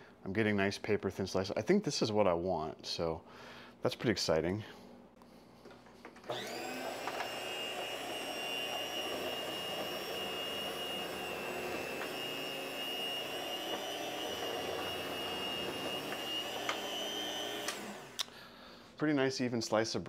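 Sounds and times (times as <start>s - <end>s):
electric slicer motor whining: 6.3s - 18.2s.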